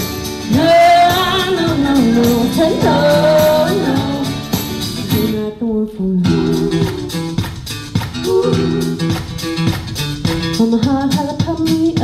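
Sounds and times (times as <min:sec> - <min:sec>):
guitar playing: 0:00.0 - 0:11.8
person singing: 0:00.5 - 0:07.5, 0:08.2 - 0:09.2.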